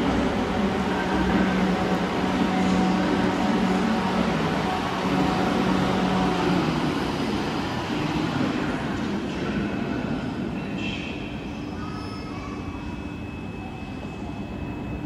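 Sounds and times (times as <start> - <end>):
low drone: 0.0 - 10.1
train mechanical noise: 0.0 - 15.0.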